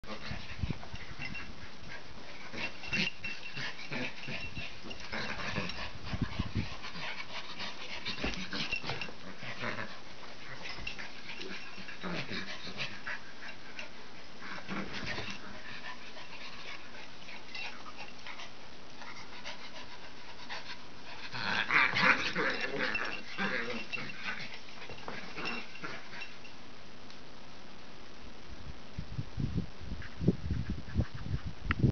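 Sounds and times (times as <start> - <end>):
dogs scuffling: 0.1 - 18.4, 20.6 - 26.5.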